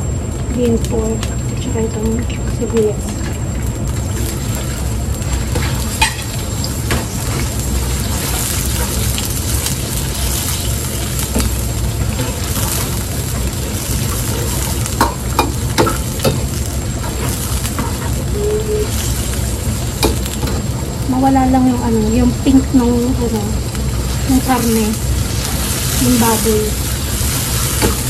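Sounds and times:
low rumble: 0.0s - 28.0s
food sizzling in hot oil: 0.2s - 28.0s.

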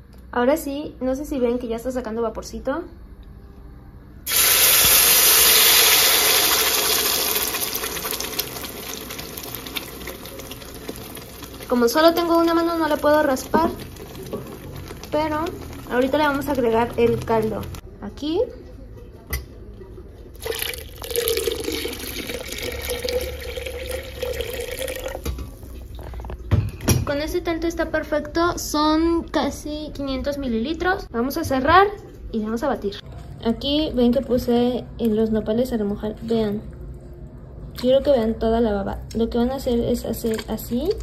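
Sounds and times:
crackles of frying: 4.3s - 17.8s
sauce sizzling in hot oil: 4.3s - 17.8s
broth pouring into blender jar: 20.4s - 25.2s.

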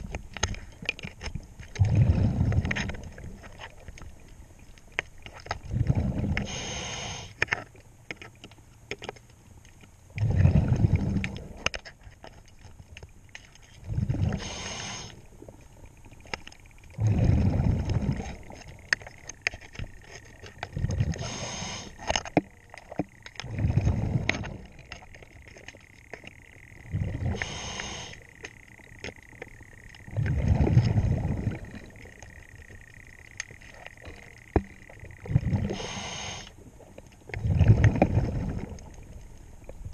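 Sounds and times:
exhaled bubbles gushing: 1.8s - 3.5s, 5.5s - 6.6s, 10.2s - 11.7s, 13.8s - 15.1s, 16.9s - 18.9s, 20.6s - 21.9s, 23.3s - 25.2s, 26.8s - 28.1s, 30.0s - 32.3s, 33.7s - 36.4s, 37.3s - 39.2s
diver inhaling through regulator: 5.9s - 7.4s, 13.9s - 15.2s, 20.8s - 22.0s, 26.9s - 28.2s, 35.3s - 36.6s.

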